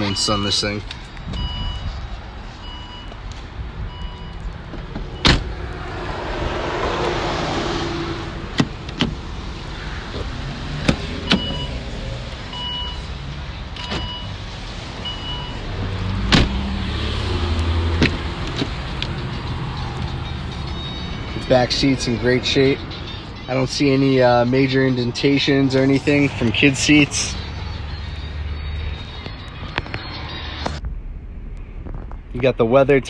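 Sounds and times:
car warning chime beeping: 0.0 - 2.0, 2.6 - 5.4, 11.2 - 11.9, 12.5 - 13.2, 13.8 - 14.4, 15.0 - 15.7
low steady rumble: 30.8 - 33.0.

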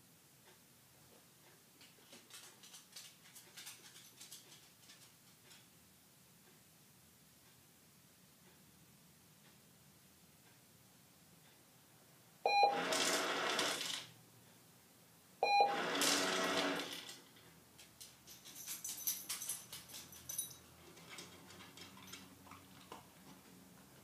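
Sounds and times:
dog collar tags jingling: 18.0 - 22.6.

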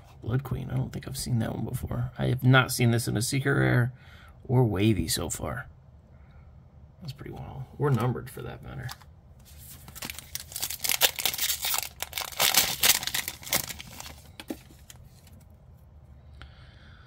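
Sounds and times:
cards handling noise: 7.9 - 15.6
foil pack tearing and crinkling: 9.5 - 15.3.

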